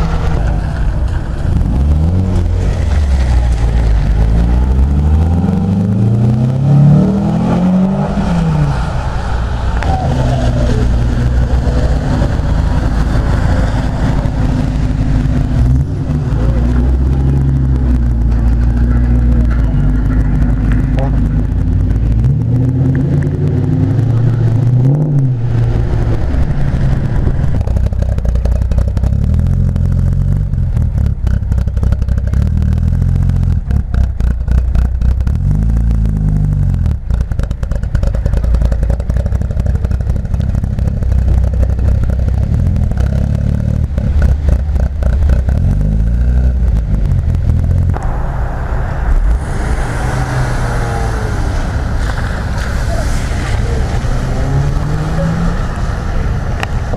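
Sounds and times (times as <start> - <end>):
car engines revving: 0.0 - 56.9
tyres hissing on wet road: 7.2 - 17.3, 47.9 - 56.9.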